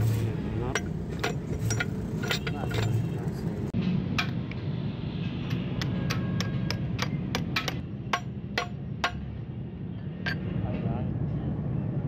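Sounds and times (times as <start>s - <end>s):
hammer tapping metal: 5.4s - 9.4s.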